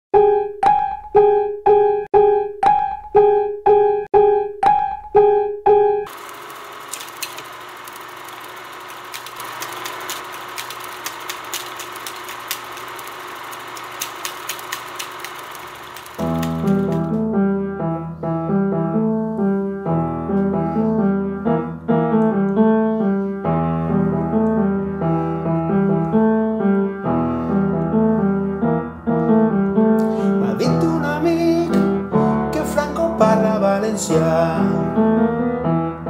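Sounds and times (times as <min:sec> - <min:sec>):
crackling hiss with clicks: 0:06.2 - 0:17.1.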